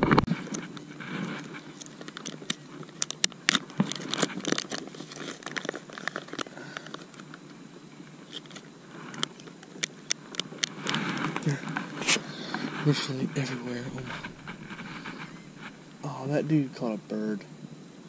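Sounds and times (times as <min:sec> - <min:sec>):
sharp crackles: 0:00.0 - 0:17.7
plastic packets crinkling: 0:01.6 - 0:07.4.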